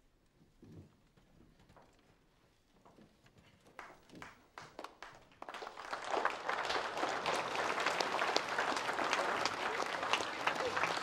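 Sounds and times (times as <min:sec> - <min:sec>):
crowd applauding: 0:03.8 - 0:11.0.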